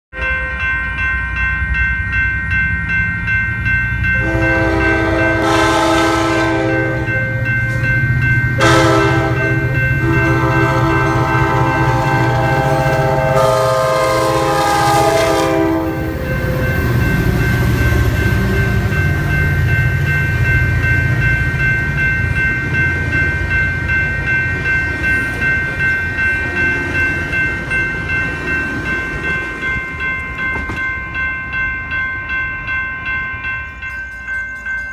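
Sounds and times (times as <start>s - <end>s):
crossing bell ringing: 0.1s - 34.9s
diesel locomotives passing: 0.2s - 34.9s
train air horn blasts: 4.2s - 7.1s, 8.6s - 16.2s.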